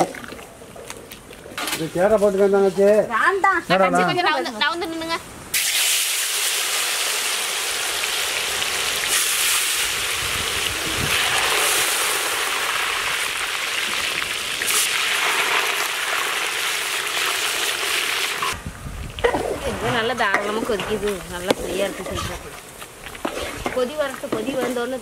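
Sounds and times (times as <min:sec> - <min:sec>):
banana pieces sizzling in hot oil: 0:05.5 - 0:18.6.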